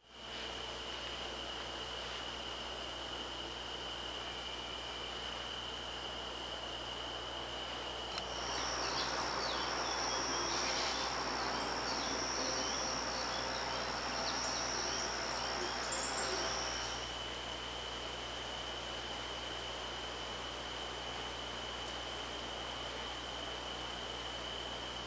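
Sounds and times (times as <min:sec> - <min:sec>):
insects trilling: 0:00.0 - 0:25.0
bird chip notes: 0:08.2 - 0:17.0.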